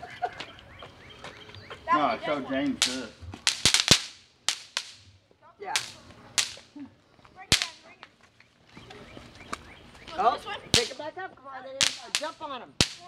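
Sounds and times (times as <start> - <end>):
bang snaps popping on concrete: 2.8 - 5.1, 5.7 - 6.7, 7.5 - 8.1, 10.7 - 11.0, 11.8 - 13.0.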